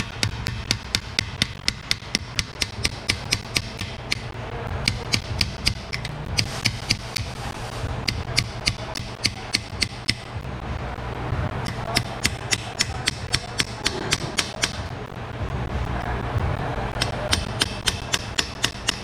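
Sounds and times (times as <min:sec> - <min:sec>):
hammer striking steel chisel: 0:00.0 - 0:07.3, 0:08.0 - 0:10.3, 0:11.6 - 0:14.8, 0:17.0 - 0:19.0.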